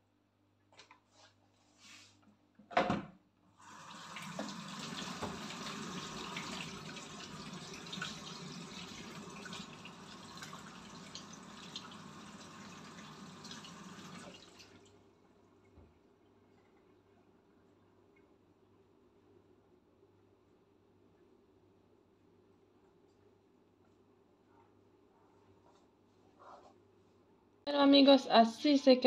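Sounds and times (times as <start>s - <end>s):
kitchen tap running: 3.6s - 14.8s
soft handling sounds: 22.8s - 27.3s.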